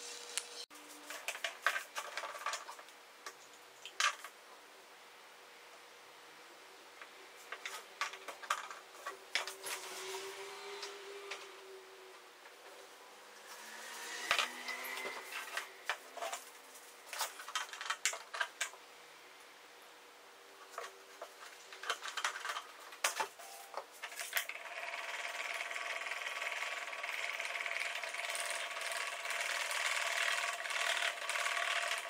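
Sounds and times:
small electric motor whining: 9.5 - 12.0, 13.4 - 16.0.

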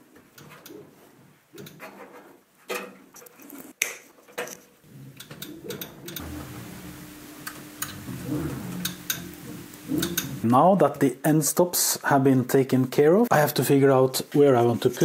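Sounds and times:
low steady hum: 6.2 - 10.9.

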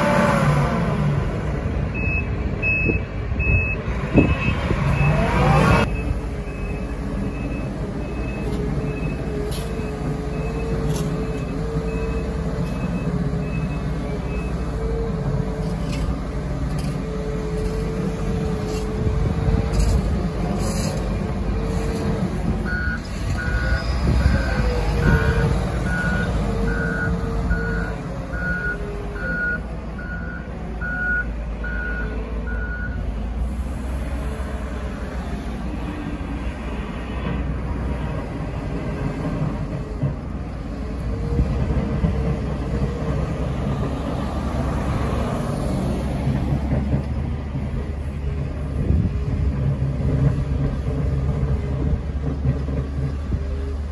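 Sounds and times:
heavy diesel engines running: 0.0 - 53.9
low-pitched reversing alarm beeps: 1.9 - 14.7, 22.7 - 33.1
high-pitched reversing alarm beeps: 2.0 - 14.6.

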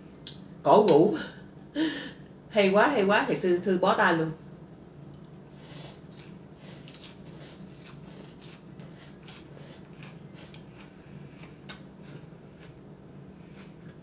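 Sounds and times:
low steady hum: 0.0 - 14.0
slurping and chewing noodles: 5.1 - 14.0.

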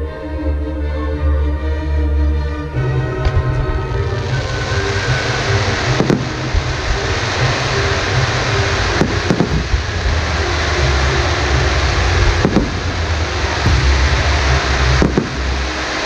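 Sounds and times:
fireworks hiss and rumble: 2.8 - 16.0
fireworks bangs: 3.0 - 16.0.

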